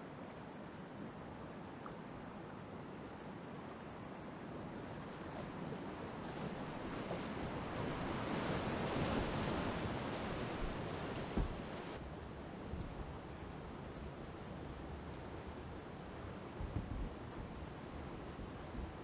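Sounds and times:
rushing white water: 0:00.0 - 0:19.0
low thump: 0:11.3 - 0:11.7.

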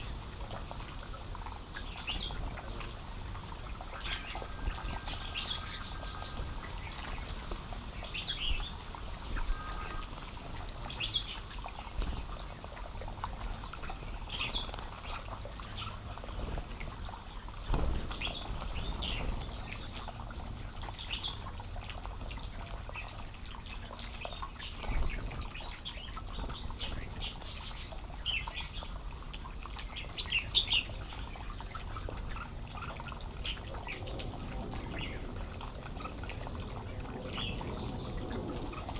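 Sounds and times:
birds chirping: 0:03.8 - 0:16.4.

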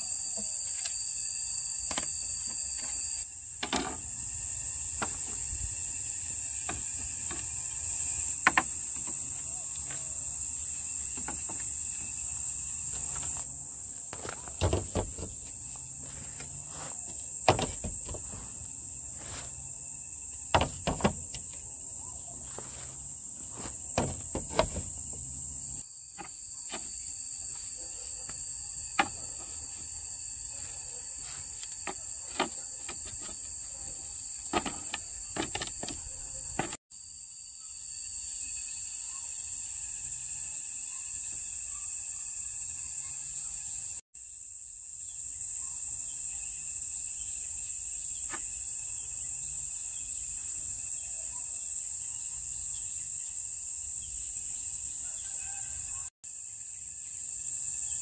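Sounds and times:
insect drone: 0:00.0 - 0:58.0
sharp knocks and taps: 0:08.4 - 0:09.2.

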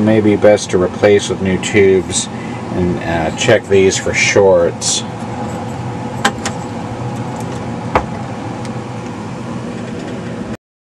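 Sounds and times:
steady hum and hiss: 0:00.0 - 0:10.6
vacuum tubes clicking and knocking: 0:05.1 - 0:08.8.

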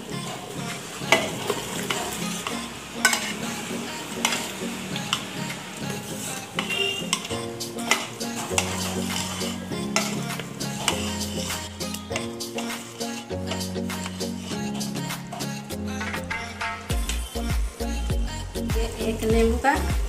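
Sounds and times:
liquid sizzling and bubbling: 0:00.0 - 0:19.0
ladle scraping and knocking pot: 0:06.6 - 0:11.4, 0:16.0 - 0:17.0.

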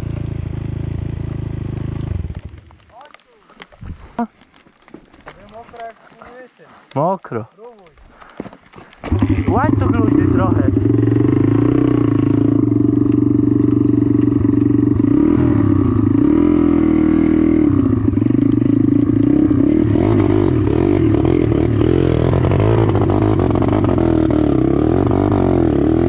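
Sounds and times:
dirt bike engine idling: 0:00.0 - 0:03.0, 0:09.1 - 0:26.0.

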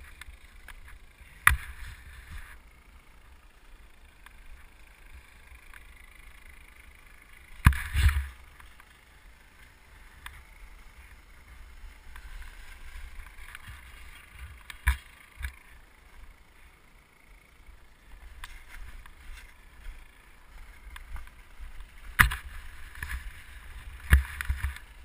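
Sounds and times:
skis scraping on snow: 0:07.7 - 0:15.0.

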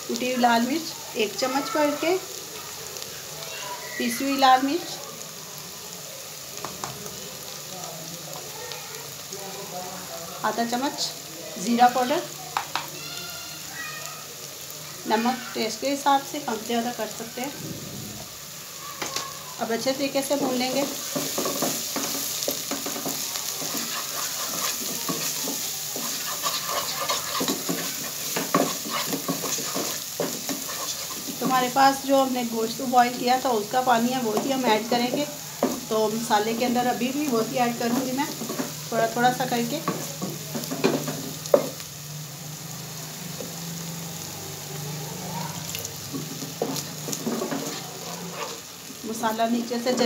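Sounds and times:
masala sizzling in oil: 0:00.0 - 0:50.0
spatula scraping pan bottom: 0:20.4 - 0:31.8, 0:46.2 - 0:48.7.

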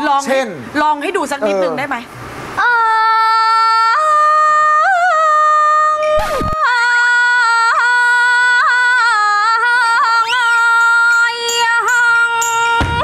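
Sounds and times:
woman singing long held note: 0:02.6 - 0:13.0.

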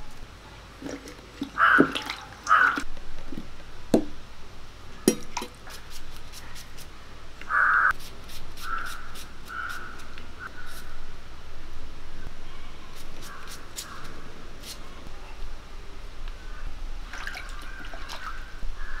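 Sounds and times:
crows cawing: 0:01.6 - 0:02.8, 0:07.5 - 0:08.0, 0:08.6 - 0:10.9, 0:13.2 - 0:14.2, 0:17.4 - 0:19.0.

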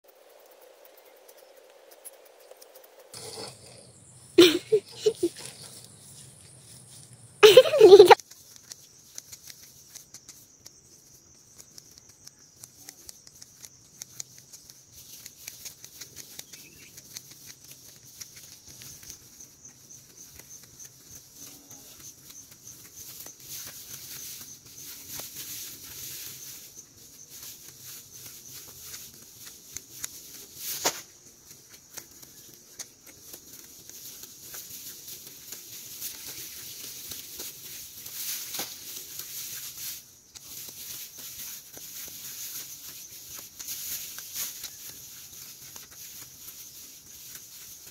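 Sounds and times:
grass rustling: 0:00.2 - 0:47.9
stems snapping: 0:11.6 - 0:19.2, 0:29.4 - 0:34.7.

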